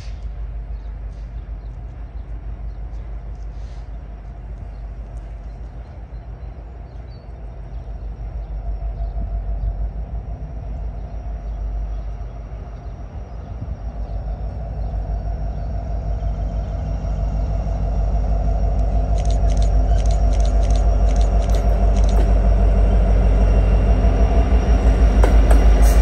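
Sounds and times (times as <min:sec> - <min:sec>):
diesel locomotive engine rumbling: 0:00.0 - 0:26.0
sharp high clicks: 0:18.8 - 0:22.4.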